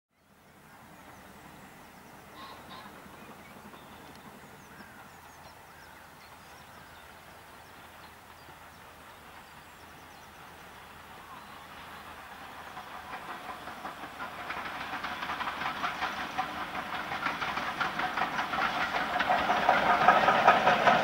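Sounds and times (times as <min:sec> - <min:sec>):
small birds chirping: 0:00.8 - 0:12.9.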